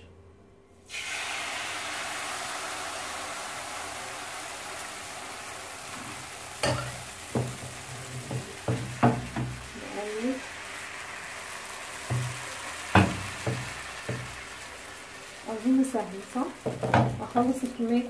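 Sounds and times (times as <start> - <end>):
batter sizzling in frying pan: 0.9 - 18.0
pan knocking on stove grate: 6.6 - 9.8, 12.1 - 14.5, 16.6 - 17.5.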